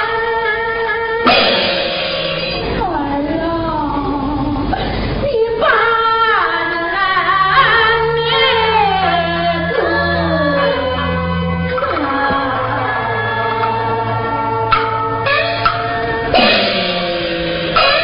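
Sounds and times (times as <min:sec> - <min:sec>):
instrumental accompaniment: 0:01.1 - 0:03.4, 0:07.5 - 0:18.0.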